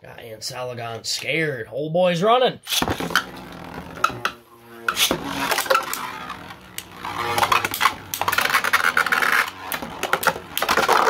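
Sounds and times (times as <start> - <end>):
spinning tops whirring on plastic: 2.8 - 11.0.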